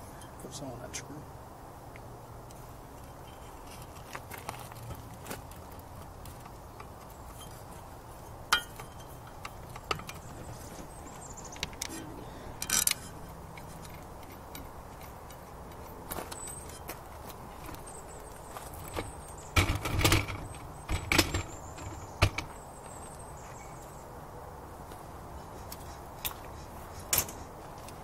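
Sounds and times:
metal clicks and knocks: 8.5s - 10.6s, 11.5s - 17.8s, 18.8s - 22.6s.

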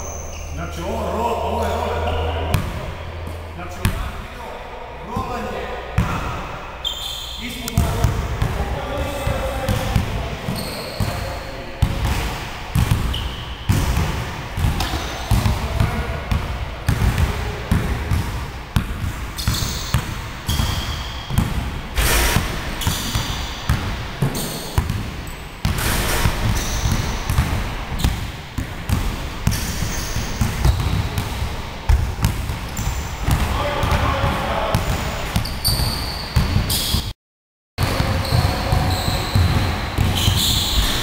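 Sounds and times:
sneakers squeaking: 0.0s - 4.0s, 6.0s - 37.1s, 37.8s - 41.0s
basketballs bouncing on wooden floor: 7.7s - 21.8s, 22.4s - 37.0s, 37.8s - 41.0s.

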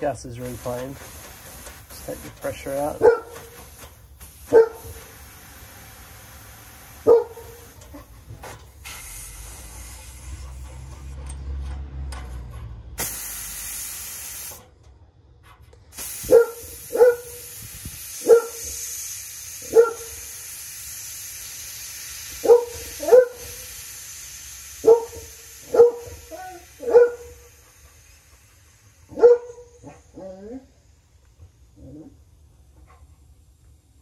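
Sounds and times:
refrigerant hissing from a line: 0.0s - 11.1s, 13.0s - 14.7s, 15.9s - 32.3s
dog barking: 3.0s - 3.5s, 4.5s - 5.0s, 7.0s - 8.1s, 16.3s - 17.4s, 18.2s - 18.7s, 19.6s - 20.2s, 22.4s - 23.6s, 24.8s - 27.4s, 29.1s - 30.4s.

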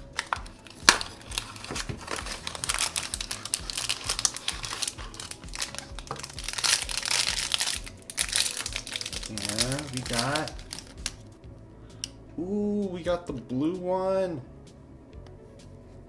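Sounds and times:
bag tearing open: 0.0s - 11.2s
packaging bag crinkling: 0.0s - 11.3s.

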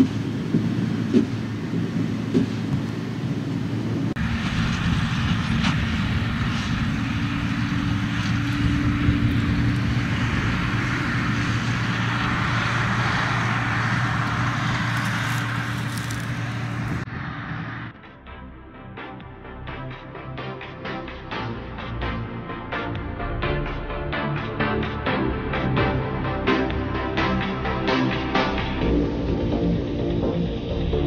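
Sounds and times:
baler machinery working: 0.0s - 17.1s
tractor diesel engine under load: 0.0s - 18.0s.

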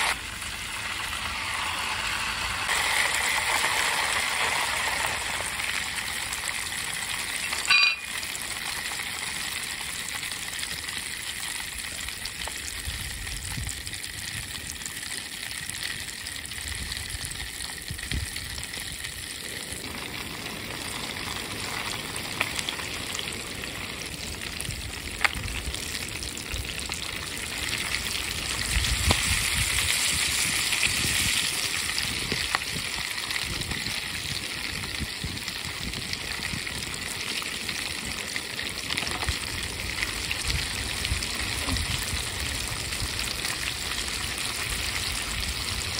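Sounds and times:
oil sizzling and bubbling: 0.0s - 45.9s
loud clink: 7.6s - 8.1s.

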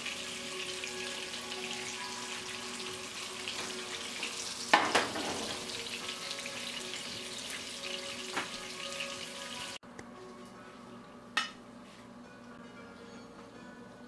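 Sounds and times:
fish sizzling in hot oil: 0.0s - 9.8s.

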